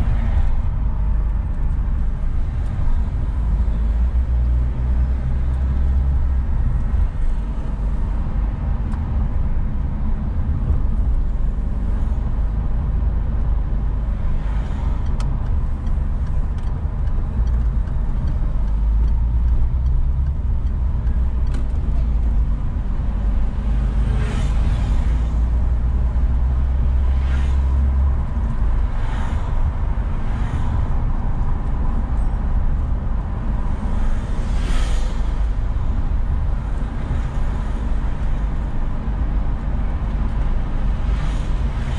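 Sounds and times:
car engine and road rumble: 0:00.0 - 0:41.9
passing vehicles hiss: 0:26.6 - 0:28.0, 0:28.9 - 0:30.9, 0:33.7 - 0:38.7.

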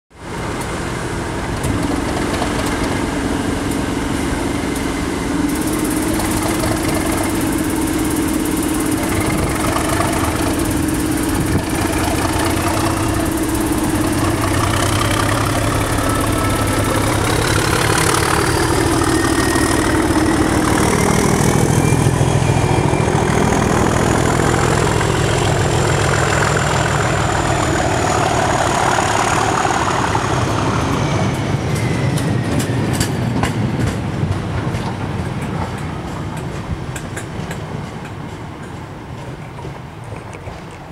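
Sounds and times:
diesel locomotive engine thrashing: 0:00.2 - 0:40.9
turbocharger whistle rising: 0:05.5 - 0:32.5.

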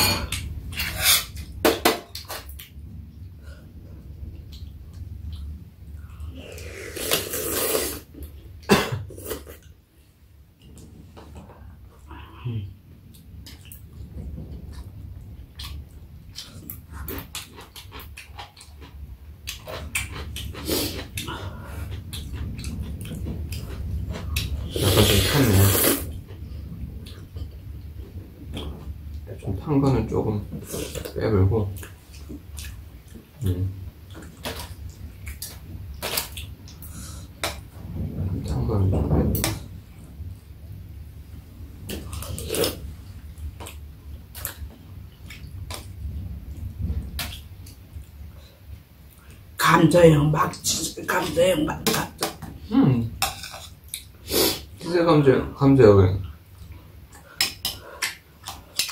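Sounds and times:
loud slurp of soup: 0:06.6 - 0:08.1, 0:24.7 - 0:26.1, 0:54.2 - 0:54.7.

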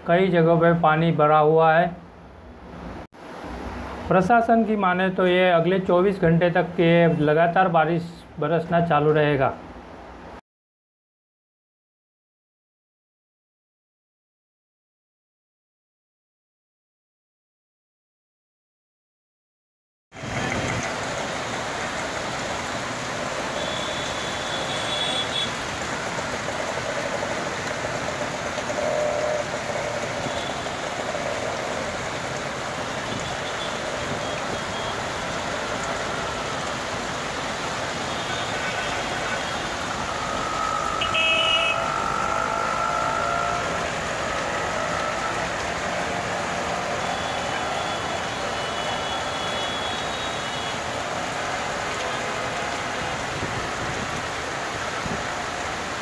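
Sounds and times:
passing vehicles: 0:20.2 - 0:56.0
rain hissing: 0:20.2 - 0:56.0
horn-like tone: 0:23.6 - 0:25.6, 0:38.1 - 0:43.6.

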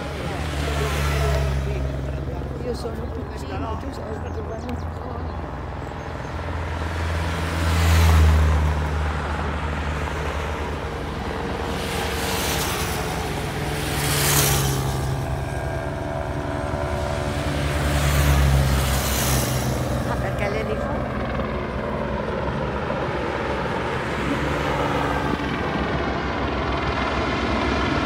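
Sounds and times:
car passing by: 0:00.0 - 0:02.9, 0:06.1 - 0:15.7, 0:16.9 - 0:20.8
low engine rumble: 0:00.0 - 0:28.0
motorcycles passing by: 0:00.0 - 0:28.0.

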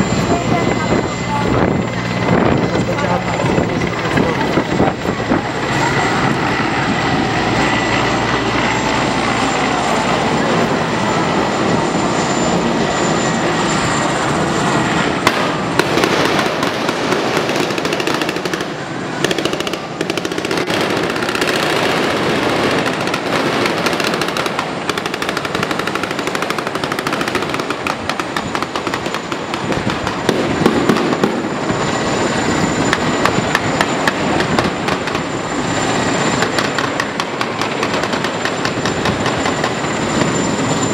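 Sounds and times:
helicopter rotor and engine: 0:00.0 - 0:40.9
automatic gunfire bursts: 0:15.3 - 0:27.8.

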